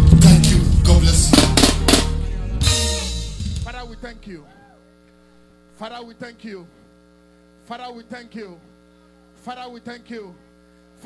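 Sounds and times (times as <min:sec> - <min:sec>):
electrical mains hum: 0:00.0 - 0:11.0
person speaking: 0:03.6 - 0:04.6.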